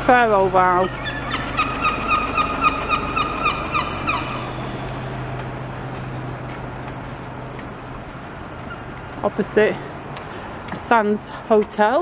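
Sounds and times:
steady low hum: 0.0s - 10.6s
gull calling: 0.7s - 5.2s.

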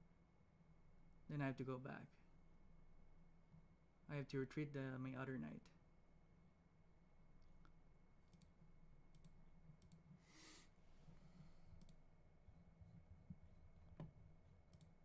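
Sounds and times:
faint clicks: 7.4s - 8.5s, 9.1s - 10.1s, 11.7s - 12.0s, 13.3s - 15.0s.

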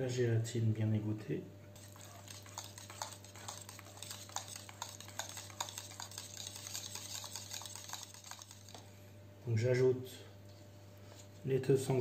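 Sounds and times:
whisk scraping metal bowl: 1.8s - 8.9s.

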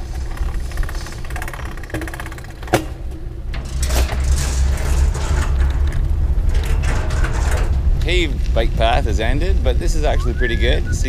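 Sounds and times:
bicycle tyres rumbling on metal: 0.0s - 11.0s
wind on camera: 4.1s - 11.0s.

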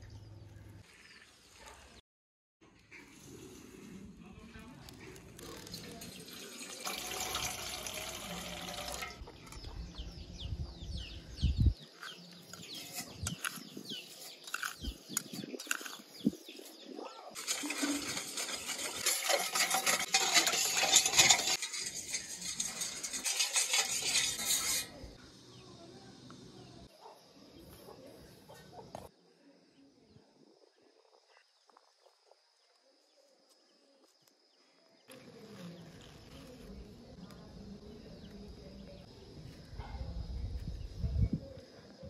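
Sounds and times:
pots and utensils clinking: 5.7s - 9.7s, 17.4s - 25.2s
water pouring and splashing: 5.8s - 9.2s.

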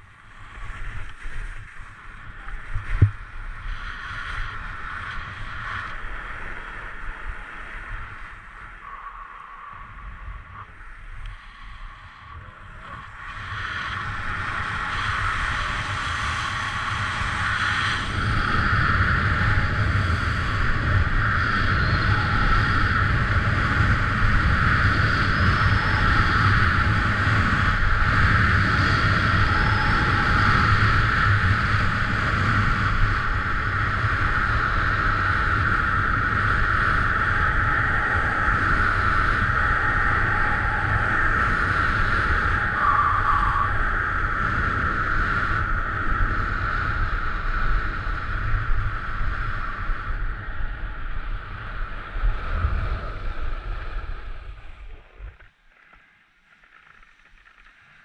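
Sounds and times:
wind rushing over microphone: 0.0s - 55.6s.

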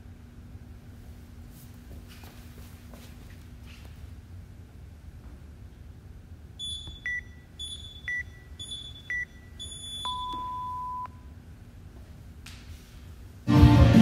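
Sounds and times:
short high timer beeps: 6.6s - 11.2s
long low timer beep: 6.6s - 11.3s.

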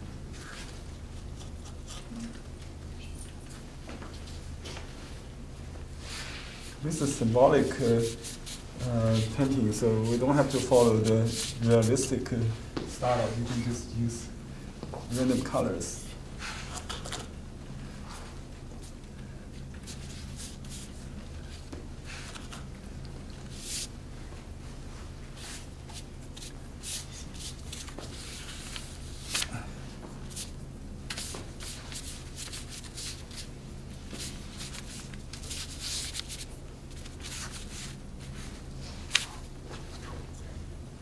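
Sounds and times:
steady low hum: 0.0s - 41.0s.

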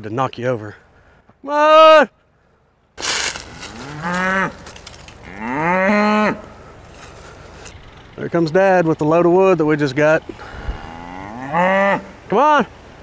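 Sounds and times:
cows mooing: 3.4s - 7.2s, 10.3s - 12.2s.

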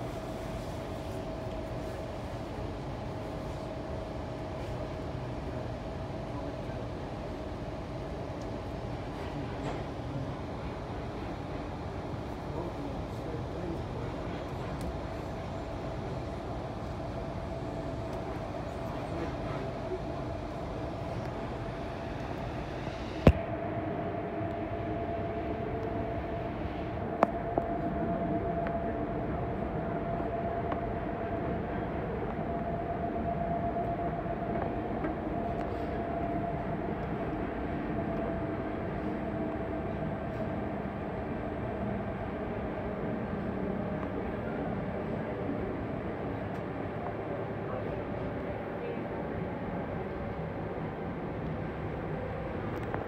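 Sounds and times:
constant hum: 0.0s - 53.0s
faint steady whine: 0.0s - 53.0s
train wheels rumbling on rails: 8.3s - 23.2s.

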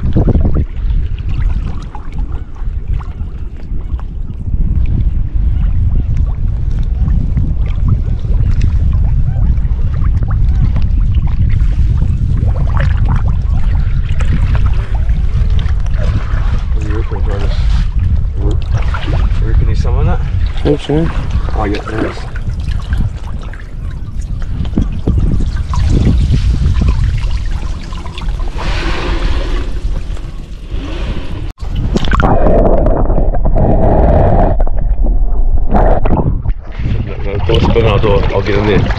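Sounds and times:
muffled underwater rush: 0.0s - 38.9s
river water lapping and gurgling: 0.0s - 38.9s
heavy low rumble: 4.2s - 38.9s
water splashing: 9.9s - 38.9s.

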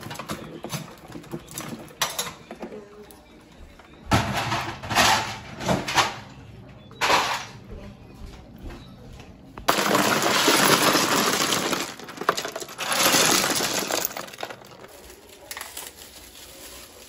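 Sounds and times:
ice cubes clattering: 9.7s - 17.0s.

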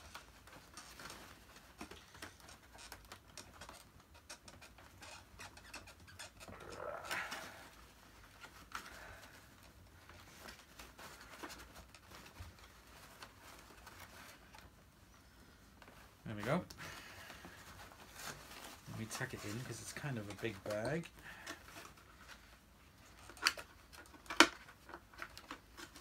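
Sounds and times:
paper bag rustling: 15.8s - 21.4s.

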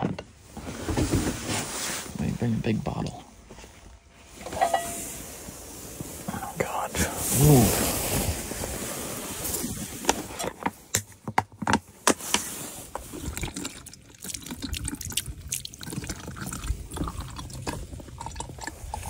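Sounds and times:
oil trickling into bottle: 13.0s - 19.0s.

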